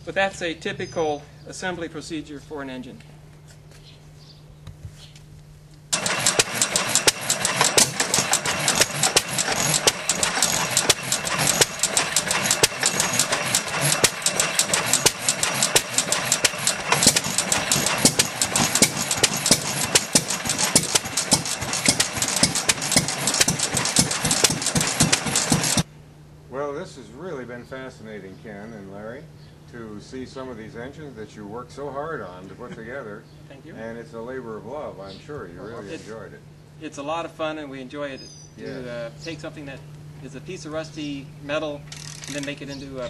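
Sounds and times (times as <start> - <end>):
stationary gas engine clattering: 5.9 - 25.9, 41.8 - 43.0.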